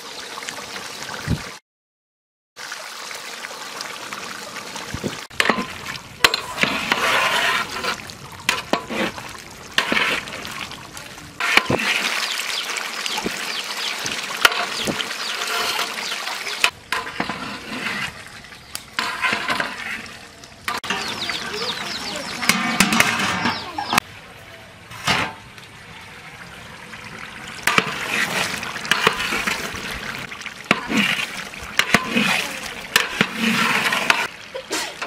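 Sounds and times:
wet sloshing stirring: 5.0s - 24.0s, 27.0s - 35.0s.

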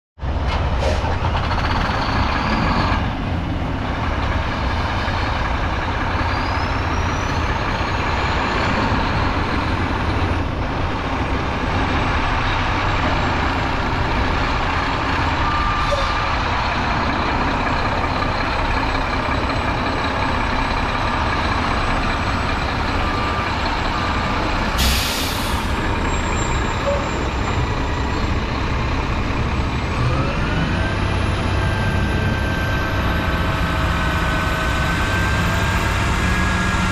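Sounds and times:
truck diesel engine idling: 3.1s - 36.9s
air brake hiss: 24.8s - 25.8s.

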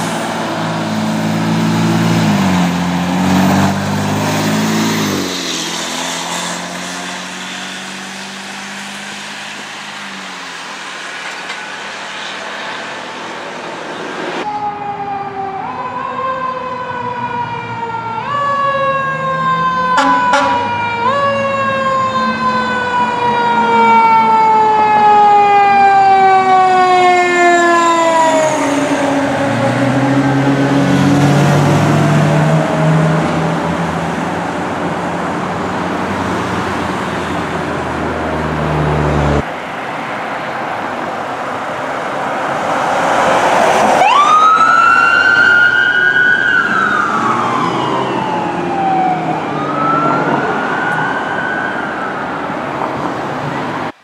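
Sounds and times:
fire truck siren: 0.0s - 54.0s
electronic wail siren: 14.4s - 35.1s, 43.8s - 52.8s.

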